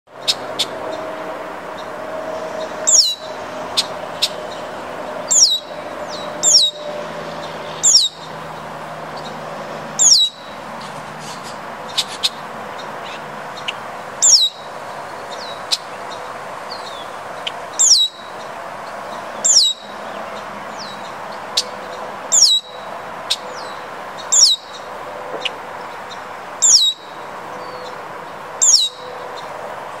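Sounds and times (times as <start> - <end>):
blackbird calling: 2.6 - 9.4, 10.0 - 18.5, 19.1 - 25.6, 26.6 - 28.0, 28.6 - 29.5.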